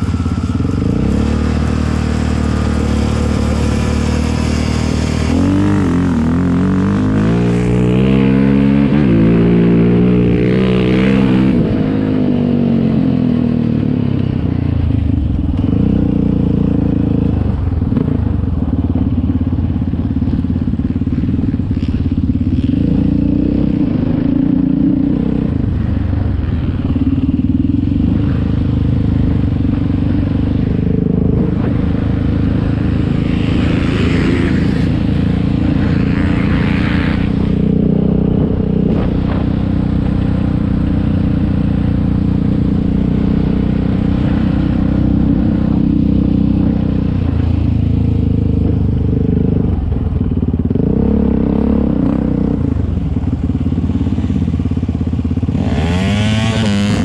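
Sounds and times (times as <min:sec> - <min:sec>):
quad bike engine revving: 0:00.0 - 0:18.8, 0:20.6 - 0:57.0
rush of noise: 0:00.0 - 0:19.8, 0:20.6 - 0:57.0.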